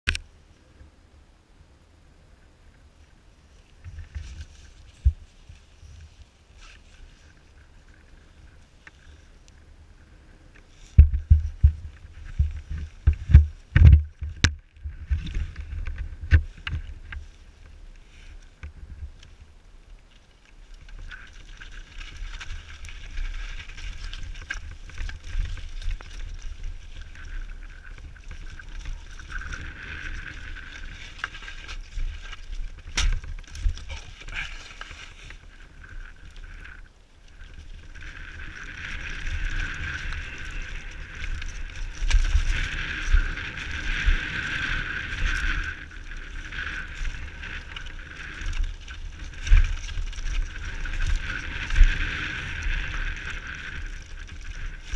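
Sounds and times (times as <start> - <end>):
bike rattling: 3.8 - 54.9
wind rushing over microphone: 9.7 - 19.7, 21.8 - 54.9
tyres on dirt: 20.2 - 54.9
knocks over rocks: 22.0 - 35.3.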